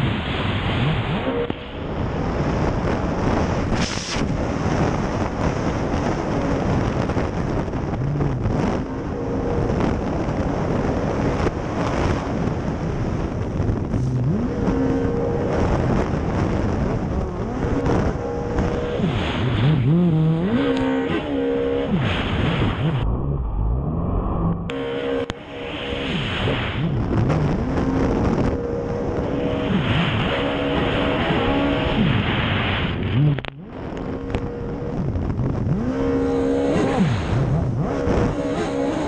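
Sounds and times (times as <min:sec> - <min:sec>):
outboard engine at speed: 0:00.0 - 0:39.0
wind noise on microphone: 0:00.0 - 0:39.0
rushing spray: 0:03.7 - 0:04.3.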